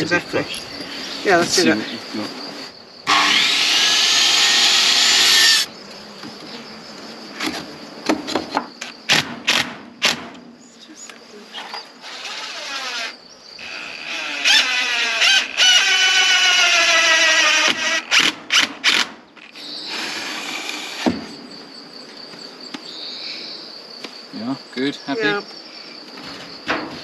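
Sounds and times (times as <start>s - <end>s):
insects chirring: 0.0s - 27.0s
cordless drill driving screws: 3.1s - 5.7s, 12.0s - 21.1s.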